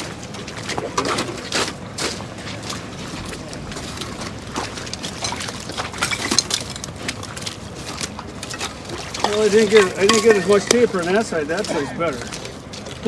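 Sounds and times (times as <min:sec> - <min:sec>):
water sloshing: 0:00.0 - 0:13.0
ice chunks clinking together: 0:04.9 - 0:13.0.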